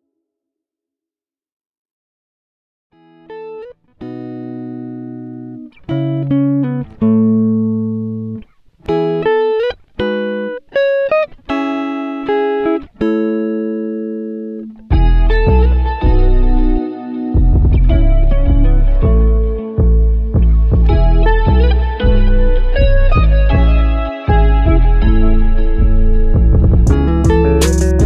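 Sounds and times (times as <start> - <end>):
plucked guitar-like melody: 3.0 - 28.0
heavy bass music: 14.9 - 16.8, 17.4 - 28.0.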